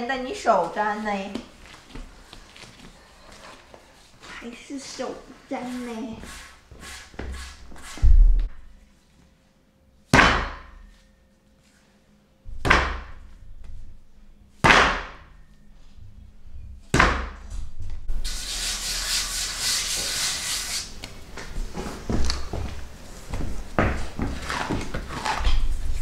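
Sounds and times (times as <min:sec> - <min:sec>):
dough rubbing: 0:00.6 - 0:08.1.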